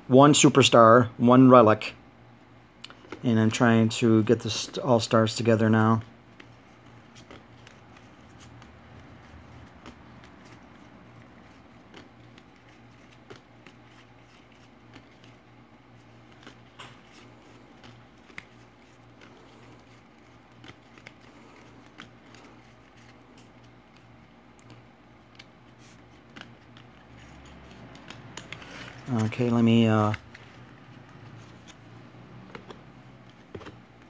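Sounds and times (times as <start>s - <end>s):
cards clicking and tapping on table: 26.3s - 29.3s.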